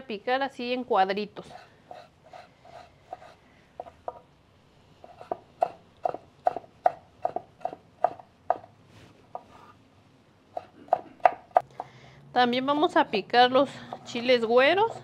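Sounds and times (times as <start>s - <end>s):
knife chopping on wooden board: 5.1s - 8.6s, 10.6s - 11.6s.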